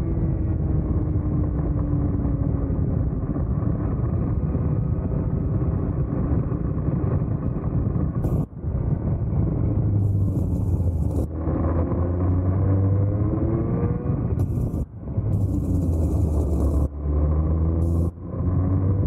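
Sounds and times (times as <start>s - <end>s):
kart engine running: 10.0s - 19.0s.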